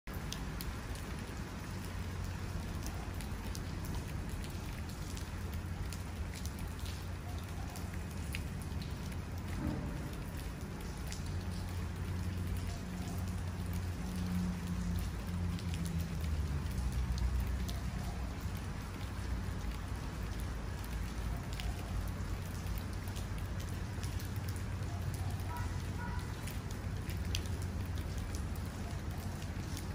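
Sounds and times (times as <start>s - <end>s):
steady rain: 0.1s - 29.9s
distant thunder rumbling: 9.4s - 10.9s.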